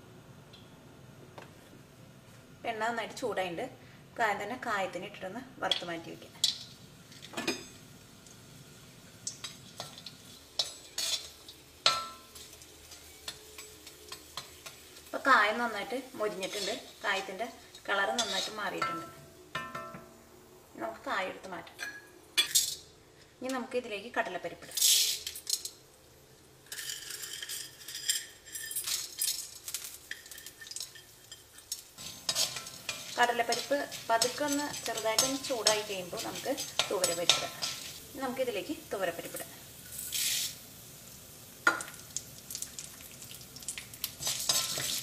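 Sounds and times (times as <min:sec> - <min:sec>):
faint oil sizzle: 0:01.8 - 0:45.0
metal ladle scraping a pan: 0:09.4 - 0:14.8, 0:16.2 - 0:19.2, 0:30.1 - 0:38.1, 0:44.2 - 0:45.0.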